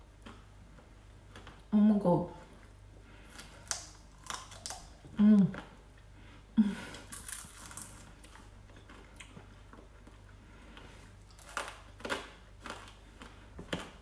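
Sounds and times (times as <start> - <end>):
crunchy bite and chewing: 3.2 - 5.0, 7.0 - 10.3, 11.0 - 14.0
lip smacking: 3.4 - 5.8.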